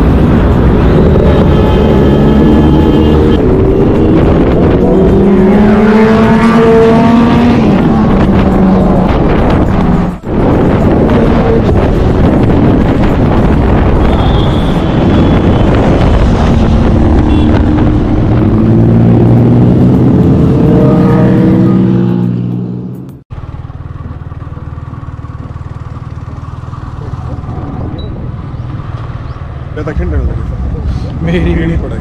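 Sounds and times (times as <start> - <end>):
wind noise: 0.0 - 22.0
motorcycle engine: 0.0 - 30.4.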